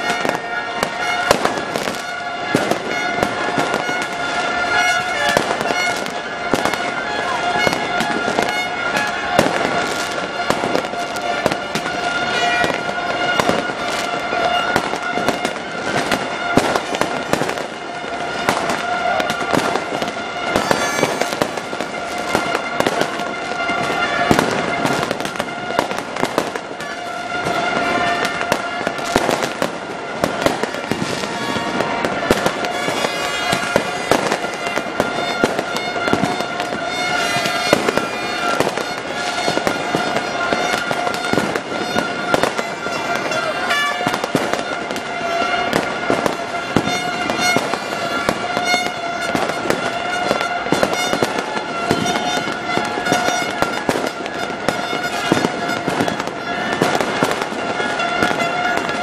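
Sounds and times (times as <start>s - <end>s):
fireworks banging and crackling: 0.0s - 59.0s.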